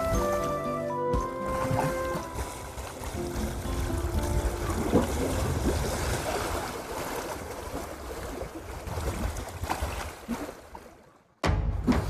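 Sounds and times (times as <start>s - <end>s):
waves washing against rocks: 1.4s - 10.7s
wind buffeting microphone: 1.5s - 7.0s.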